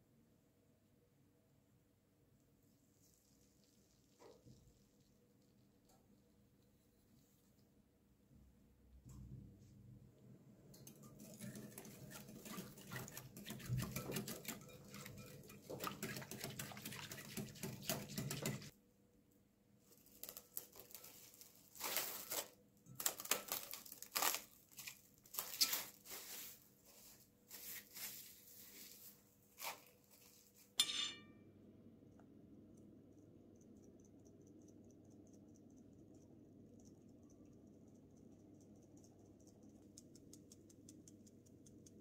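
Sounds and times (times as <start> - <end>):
liquid stirred in glass bowl: 10.8 - 18.7
cling film crinkling: 19.9 - 26.6.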